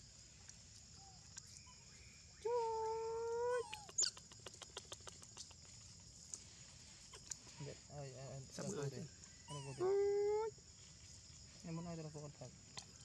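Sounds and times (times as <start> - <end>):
macaque call ending in squeak: 3.6 - 4.2.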